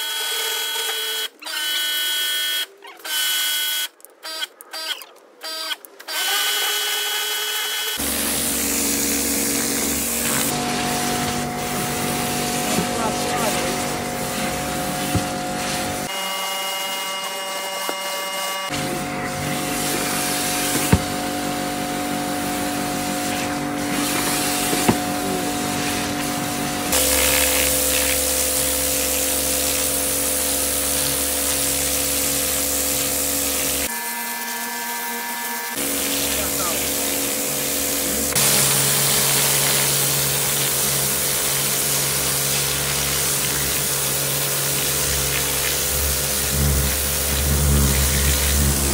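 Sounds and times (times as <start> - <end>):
pressure washer motor hum: 7.7 - 48.9
water spray hissing: 8.0 - 16.1, 22.4 - 33.9, 35.7 - 48.9.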